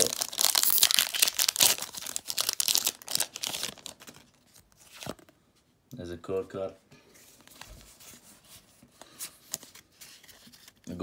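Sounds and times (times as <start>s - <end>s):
foil wrapper tearing and crinkling: 0.0s - 4.3s.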